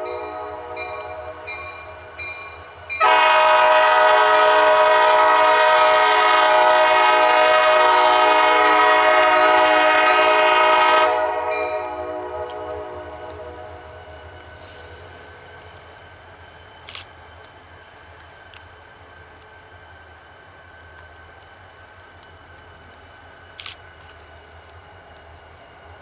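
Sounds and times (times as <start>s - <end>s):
locomotive air horn blast: 0.0s - 1.2s, 3.0s - 13.6s.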